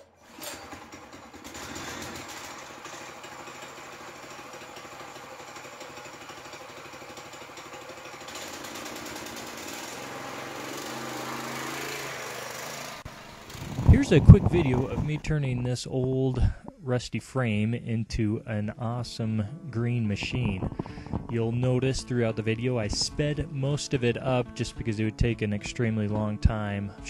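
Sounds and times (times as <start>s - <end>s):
go-kart engine running: 0.0s - 15.2s, 20.2s - 21.3s.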